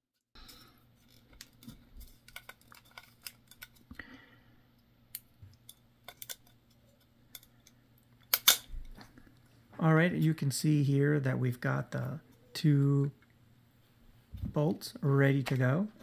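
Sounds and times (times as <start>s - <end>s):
small metal parts clicking: 0.4s - 3.8s, 5.1s - 8.7s
low steady hum: 0.4s - 16.0s.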